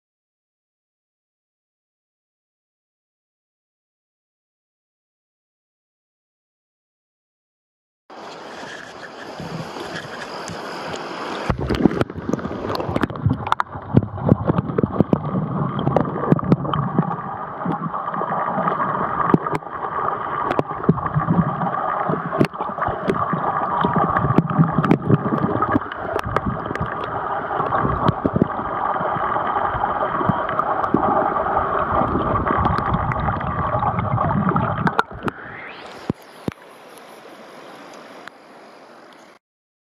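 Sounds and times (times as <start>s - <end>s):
stream flowing over pebbles: 8.1s - 39.4s
muffled underwater gurgling: 8.7s - 36.6s
underwater clicks and knocks: 9.8s - 19.8s, 20.4s - 29.2s, 29.9s - 31.3s, 31.9s - 35.4s.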